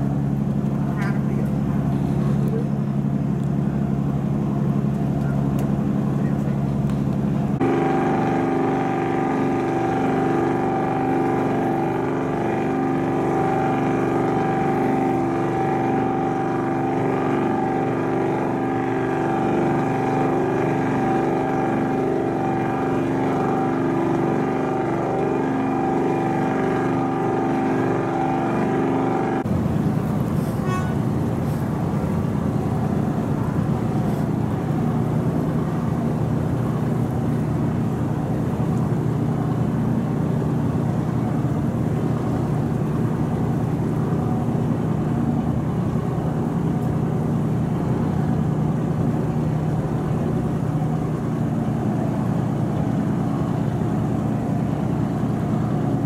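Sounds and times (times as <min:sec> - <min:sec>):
ferry engine droning: 0:00.0 - 0:56.0
water noise: 0:00.0 - 0:56.0.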